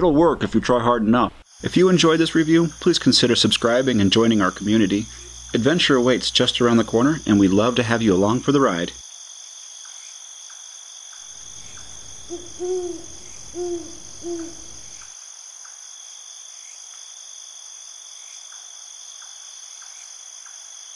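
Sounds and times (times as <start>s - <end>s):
crickets trilling: 1.1s - 20.9s
owl hooting: 11.4s - 15.1s.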